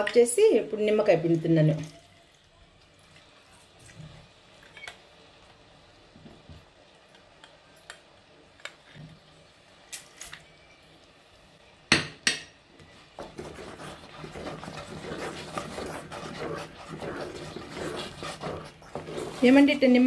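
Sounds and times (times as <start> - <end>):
spatula stirring thick jam: 12.9 - 20.0.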